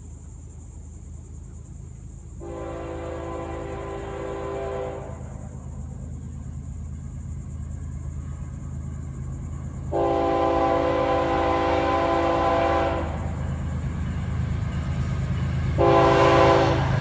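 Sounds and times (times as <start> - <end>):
low locomotive rumble: 0.0 - 17.0
locomotive air horn: 2.4 - 5.3, 9.9 - 13.3, 15.8 - 17.0.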